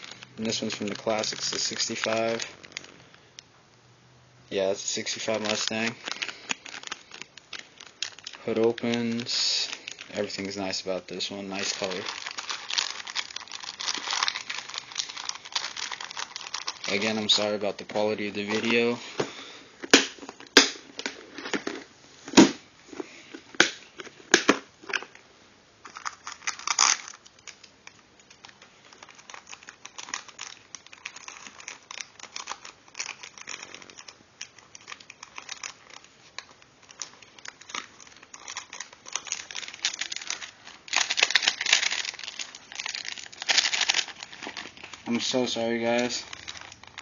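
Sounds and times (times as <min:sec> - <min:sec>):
plastic bags crinkling: 0:00.0 - 0:03.4, 0:04.5 - 0:21.9, 0:25.8 - 0:47.0.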